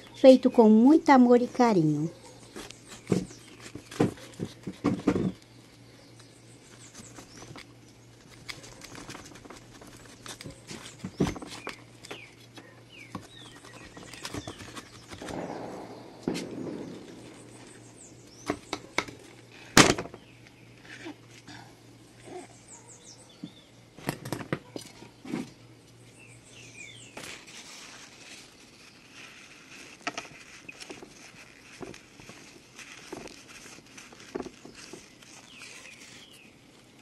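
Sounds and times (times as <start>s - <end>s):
birds chirping: 0.0s - 21.0s, 22.1s - 24.0s, 24.6s - 27.4s.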